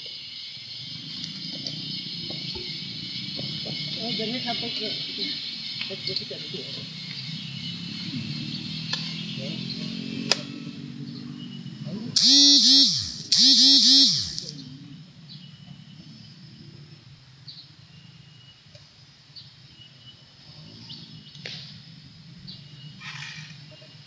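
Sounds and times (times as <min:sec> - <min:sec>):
low outdoor background noise: 0:00.0 - 0:24.0
faint bird chirps: 0:11.1 - 0:24.0.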